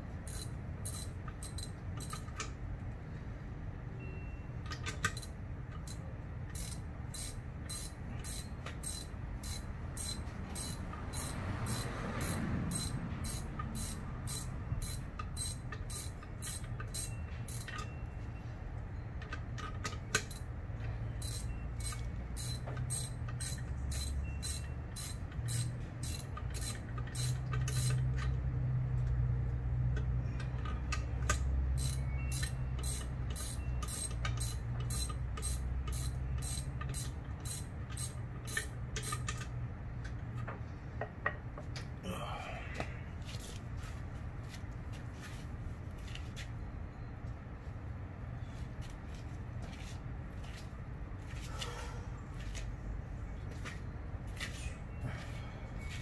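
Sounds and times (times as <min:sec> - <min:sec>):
ratchet wrench clicking: 0:00.3 - 0:02.5, 0:04.6 - 0:17.9, 0:19.2 - 0:20.5, 0:21.2 - 0:28.4, 0:29.9 - 0:39.6.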